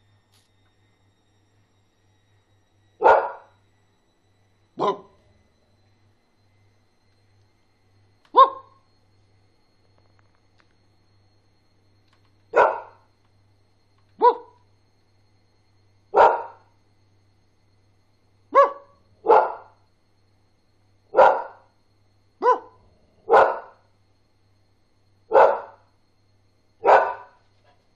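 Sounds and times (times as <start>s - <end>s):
dog barking: 3.0s - 3.5s, 4.8s - 5.2s, 8.3s - 8.8s, 12.5s - 13.0s, 14.2s - 14.6s, 16.2s - 16.6s, 18.5s - 19.8s, 21.1s - 21.7s, 22.4s - 23.8s, 25.3s - 25.8s, 26.8s - 27.4s.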